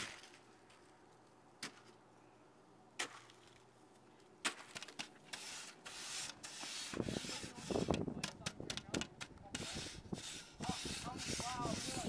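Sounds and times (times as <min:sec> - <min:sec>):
snow shovel scraping snow: 0:05.3 - 0:07.9, 0:09.6 - 0:12.0.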